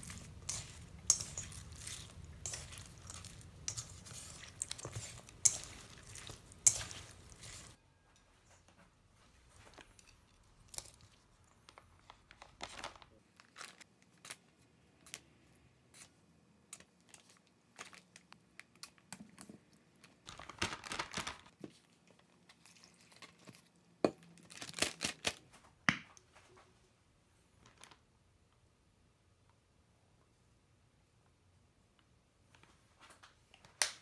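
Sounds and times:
chopsticks clicking on steel bowl: 0.4 - 7.8
plastic bag crinkling: 20.2 - 21.6, 24.4 - 25.4.

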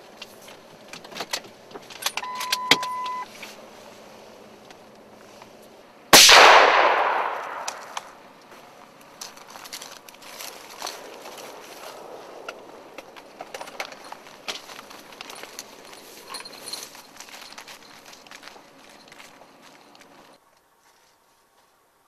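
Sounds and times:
electronic beep: 2.2 - 3.3
loud bang: 6.2 - 8.1.

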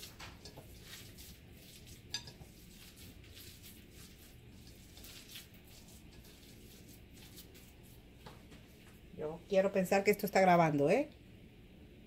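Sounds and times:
hand squishing dough: 0.0 - 9.0.

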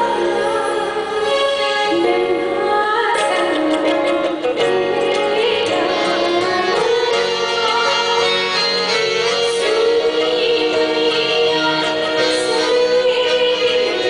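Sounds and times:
live band playing song: 0.0 - 14.0.

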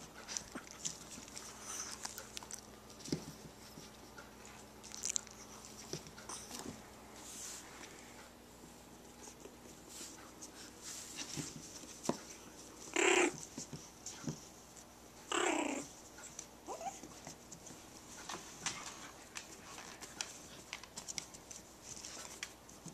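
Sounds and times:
paws clicking on wooden floor: 0.0 - 6.8, 15.8 - 22.9
dog whining: 12.9 - 13.4, 15.3 - 15.9, 16.6 - 17.1
dog growl-barks: 13.0 - 13.4.

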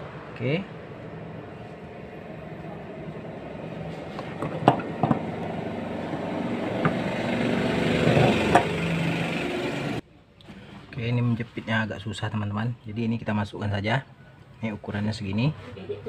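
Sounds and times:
engine-like drone: 0.0 - 10.0.

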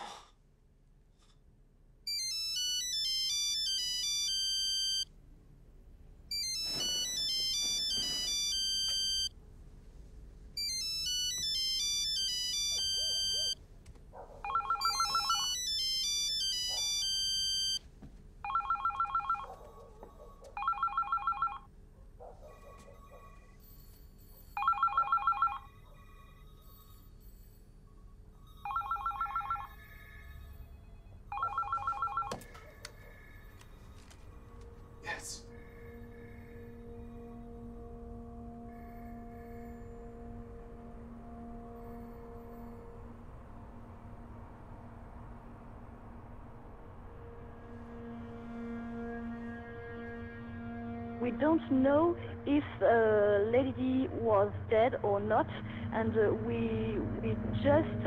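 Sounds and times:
melodic electronic ringtone: 2.1 - 5.1, 6.3 - 9.3, 10.6 - 13.6, 14.5 - 17.8, 18.4 - 19.5, 20.5 - 21.7, 23.0 - 27.1, 28.4 - 33.9
phone electronic trill: 14.5 - 17.8.

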